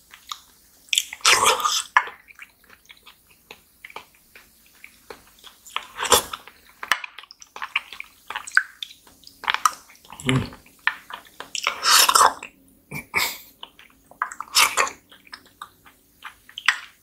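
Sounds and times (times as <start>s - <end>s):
squishy chewing: 0.0s - 17.0s
wet slurping of jelly: 1.0s - 3.2s, 7.4s - 12.5s, 13.2s - 17.0s.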